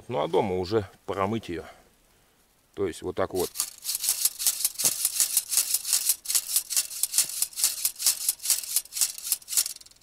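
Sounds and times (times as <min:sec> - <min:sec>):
metal grill rods rattling: 0:03.4 - 0:10.0.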